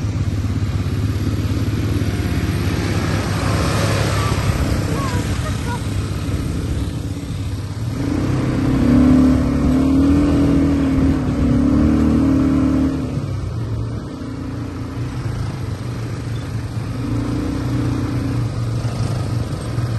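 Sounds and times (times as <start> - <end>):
atv engine revving: 0.0 - 19.9.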